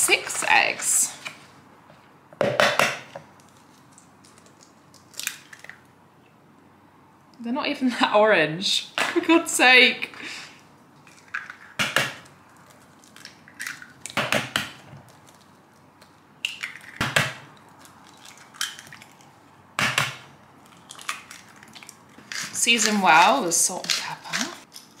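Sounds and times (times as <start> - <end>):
eggs cracking: 3.3 - 6.0, 11.0 - 25.0.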